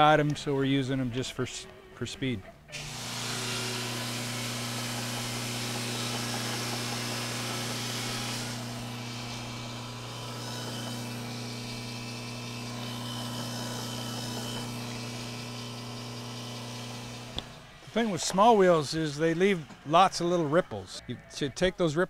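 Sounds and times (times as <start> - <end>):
grinder motor humming: 2.8 - 17.7.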